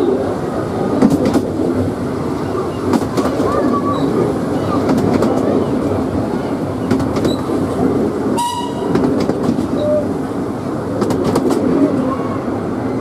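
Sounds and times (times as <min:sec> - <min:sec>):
train wheels rumbling on track: 0:00.0 - 0:13.0
high-pitched train toot: 0:08.4 - 0:08.9.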